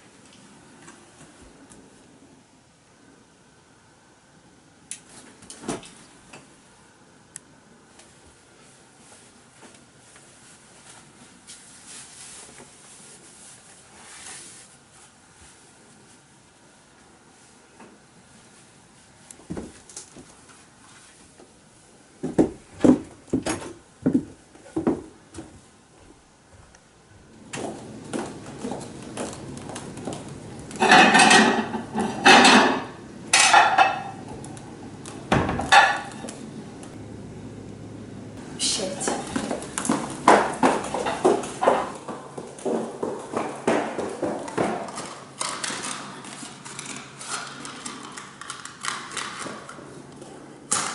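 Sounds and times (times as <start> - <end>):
room hiss: 0.0 - 45.4
ceramic dishes clattering: 30.8 - 34.2.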